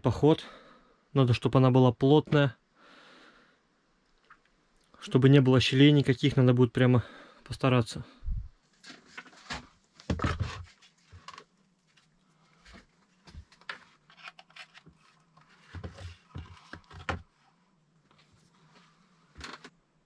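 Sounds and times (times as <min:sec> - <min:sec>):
knocks and scrapes: 0:08.8 - 0:11.4, 0:13.3 - 0:17.3.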